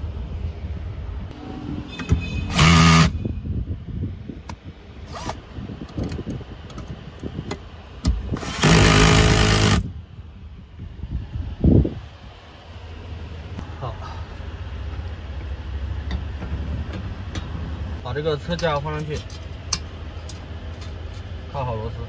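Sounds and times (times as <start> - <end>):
cordless drill motor whine: 2.5 - 3.2, 8.4 - 9.8.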